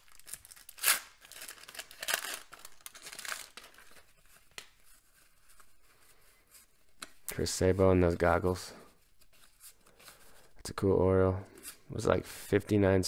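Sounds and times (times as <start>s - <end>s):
wax paper wrapper crinkling: 0.0s - 7.4s.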